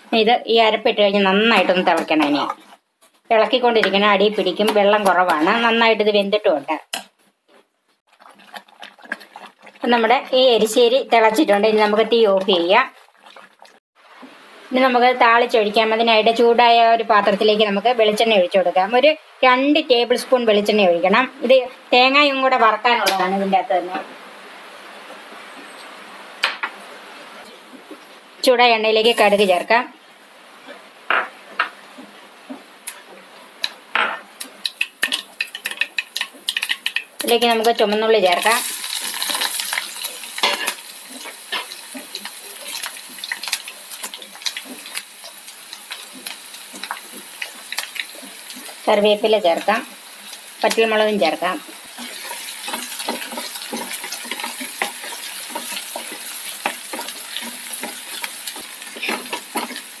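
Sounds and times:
food sizzling in hot oil: 8.0 - 13.8, 28.5 - 30.5, 33.6 - 60.0.

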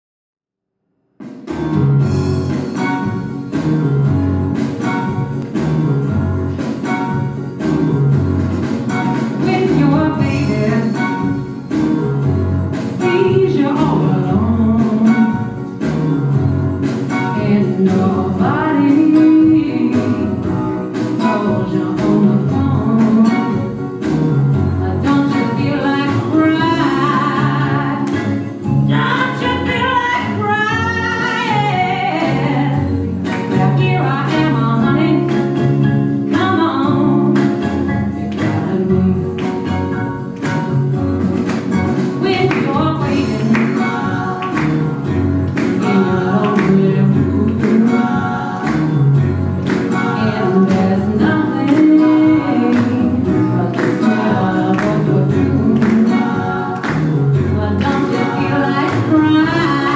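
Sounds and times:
instrumental accompaniment with beat: 1.2 - 59.9
woman singing soul song: 9.3 - 11.4, 13.0 - 15.8, 17.1 - 23.9, 24.7 - 39.9, 42.2 - 59.9.

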